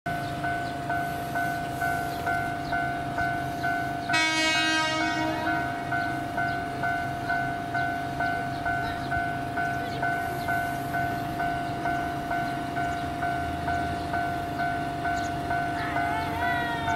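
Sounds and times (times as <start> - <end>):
level crossing warning bell: 0.1 - 16.9
train horn: 4.1 - 6.0.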